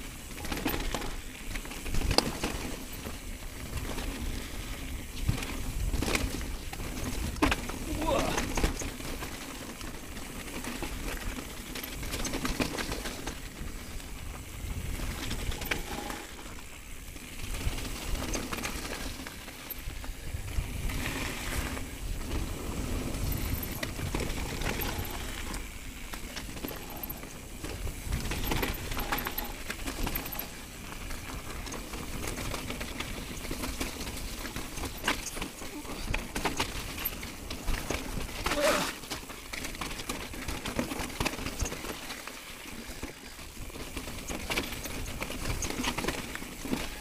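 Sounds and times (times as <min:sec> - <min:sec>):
bike knocks and rattles: 0:00.1 - 0:04.4, 0:05.1 - 0:47.0
wind buffeting microphone: 0:19.9 - 0:25.8, 0:26.5 - 0:32.6
tyres crunching over stones: 0:20.8 - 0:47.0.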